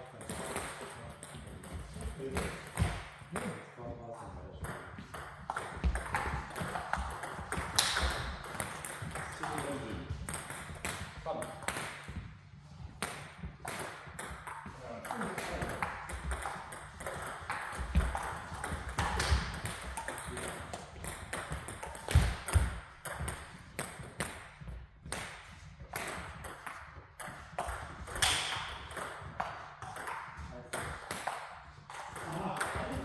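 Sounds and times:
table tennis balls clicking: 4.6 - 12.2, 13.0 - 33.0.

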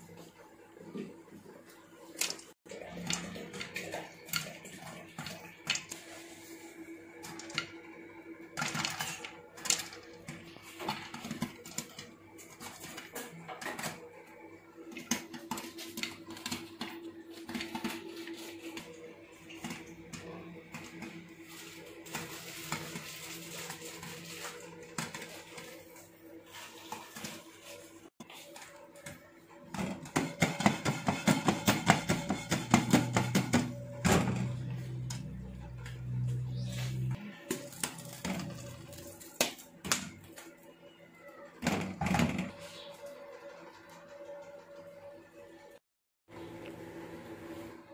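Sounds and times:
popcorn popping in a pot: 2.1 - 27.5, 28.5 - 36.3.

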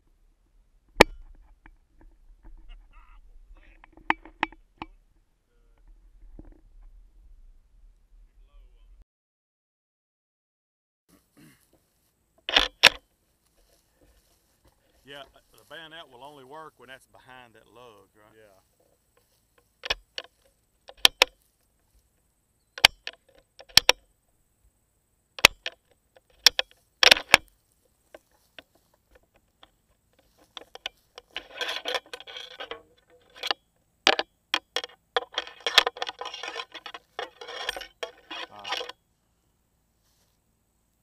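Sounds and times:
sharp handling clicks and knocks: 3.7 - 5.0, 11.7 - 16.0, 18.7 - 22.2, 22.8 - 24.0, 25.4 - 39.0.

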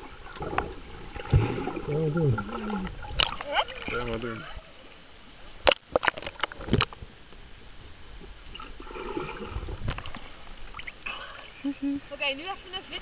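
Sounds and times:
underwater water sloshing: 0.0 - 13.0
sharp knocks and splashes: 0.3 - 4.1.

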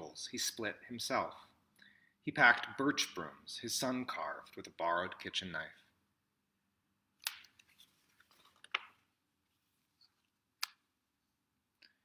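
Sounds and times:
book pages turning: 7.2 - 10.2.

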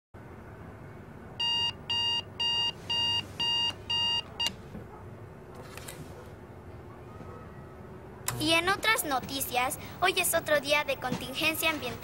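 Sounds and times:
digital alarm clock beeping: 1.4 - 4.5.

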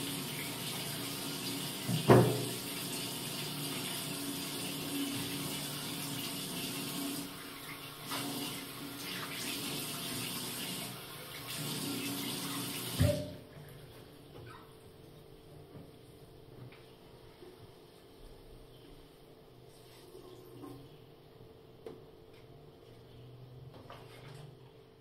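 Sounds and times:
tap water running into basin: 0.0 - 13.4.

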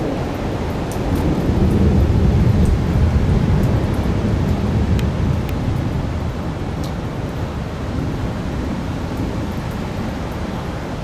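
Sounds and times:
thunder rumbling: 0.0 - 10.2
wind noise on microphone: 0.0 - 11.0.

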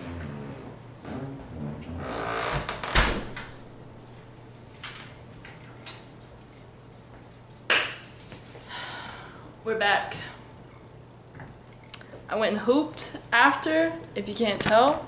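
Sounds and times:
door shutting with thud: 2.4 - 3.6.

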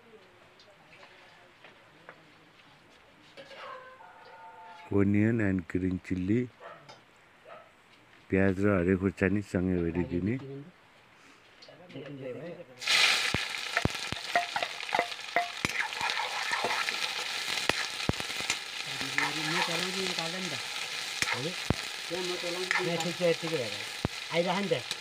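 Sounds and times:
steel spoon scraping a pan: 3.4 - 3.7, 13.2 - 24.0
onions sizzling in hot oil: 12.8 - 25.0.

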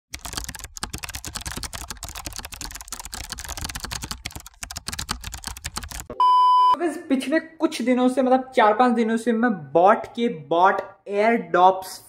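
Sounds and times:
rapid keyboard typing: 0.1 - 6.2.

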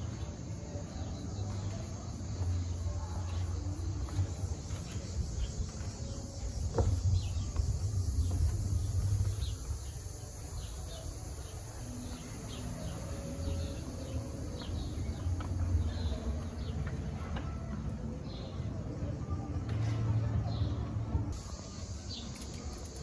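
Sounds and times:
high insect drone: 0.0 - 16.5, 21.3 - 23.0
low uneven rumble: 1.4 - 23.0
faint chirps: 21.3 - 23.0.

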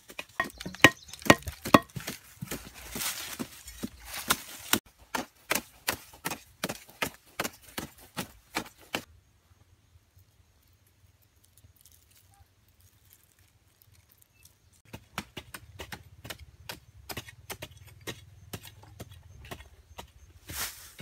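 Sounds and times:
machete chopping wooden stake: 0.4 - 2.2.

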